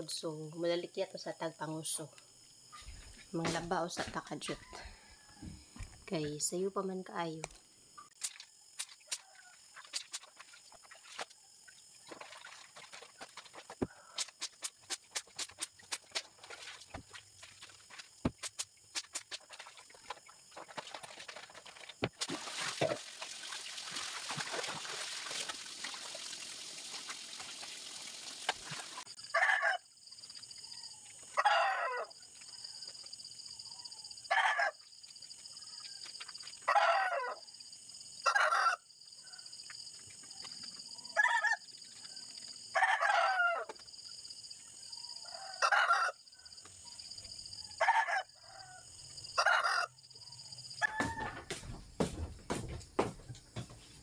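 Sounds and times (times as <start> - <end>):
roosters crowing: 29.3 - 29.8, 31.4 - 32.1, 36.7 - 37.4, 38.2 - 38.8, 42.8 - 43.7, 45.3 - 46.2, 47.8 - 50.0, 50.8 - 51.6.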